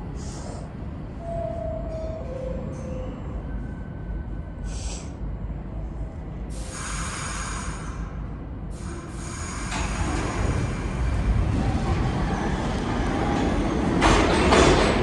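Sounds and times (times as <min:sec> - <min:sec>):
subway train rumbling: 0:00.0 - 0:15.0
air hissing: 0:04.7 - 0:05.2, 0:06.5 - 0:08.0.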